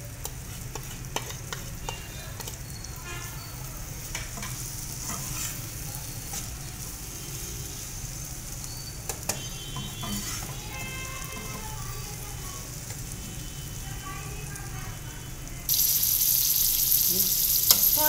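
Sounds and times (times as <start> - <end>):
food sizzling in oil: 0.0 - 18.0
spatula clicking against pan: 0.2 - 2.6
metal spatula stirring: 0.2 - 2.8, 4.0 - 6.6, 9.3 - 11.8.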